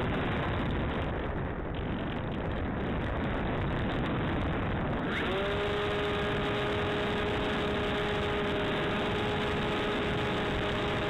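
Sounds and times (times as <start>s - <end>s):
wind on microphone: 0.0s - 11.0s
electric motor whine: 5.0s - 11.0s.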